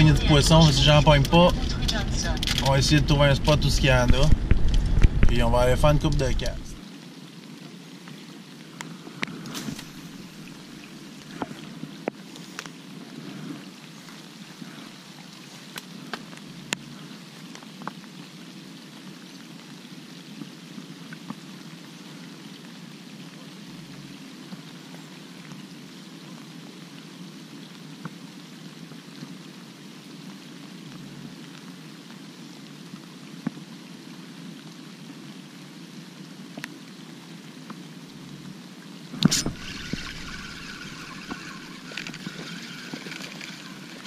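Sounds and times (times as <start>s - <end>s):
light rain falling on water: 0.0s - 44.0s.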